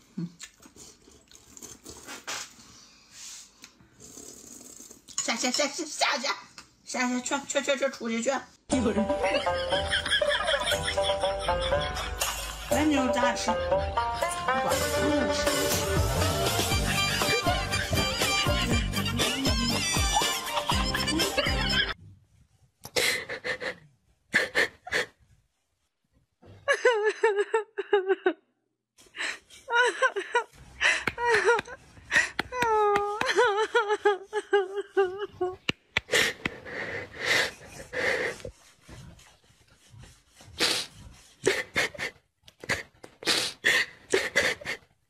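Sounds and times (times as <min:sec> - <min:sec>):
music: 0:08.7 - 0:22.0
dog wheezing breaths: 0:36.0 - 0:44.9.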